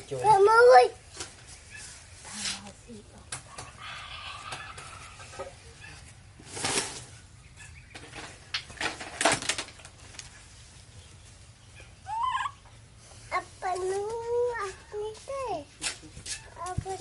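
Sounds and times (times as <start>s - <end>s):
rustling and handling noise: 4.7s - 7.3s, 7.9s - 11.5s, 13.0s - 17.0s
baby monkey call: 11.7s - 12.7s.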